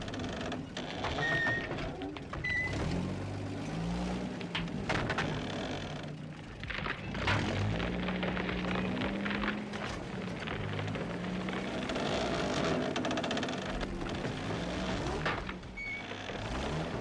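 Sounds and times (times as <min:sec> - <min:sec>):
truck engine revving: 0:02.6 - 0:17.0
short high squeaks: 0:15.8 - 0:16.4.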